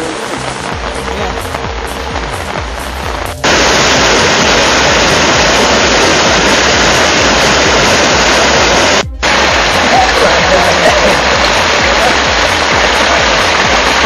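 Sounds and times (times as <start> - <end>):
rushing floodwater: 3.4 - 14.0.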